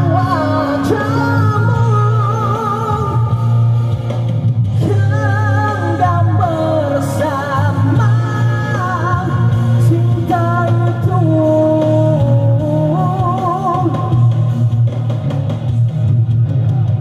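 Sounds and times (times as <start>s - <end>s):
man singing into a microphone: 0.0s - 3.5s, 4.8s - 14.4s
backing music: 0.0s - 17.0s.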